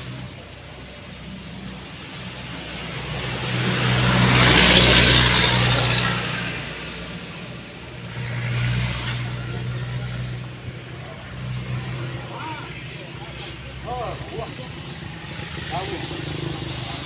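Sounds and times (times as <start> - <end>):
motor vehicle passing by: 0.0 - 17.0
steady engine hum: 0.0 - 17.0.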